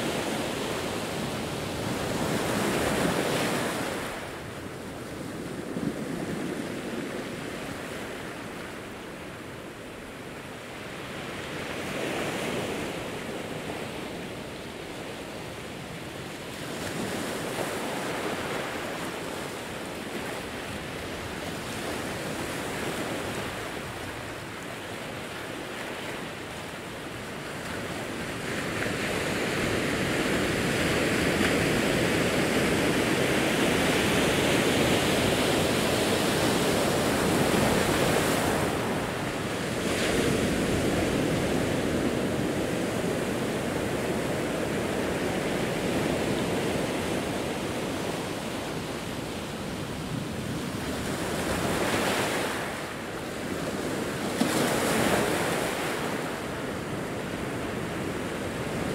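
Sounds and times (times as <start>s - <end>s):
ocean waves breaking on rocks: 16.4s - 58.9s.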